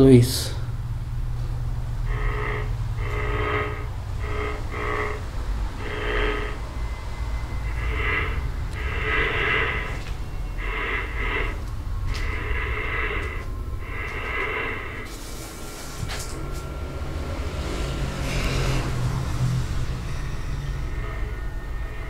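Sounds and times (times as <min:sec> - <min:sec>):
low steady rumble: 0:00.0 - 0:22.0
choppy bursts of radio static: 0:02.0 - 0:15.1.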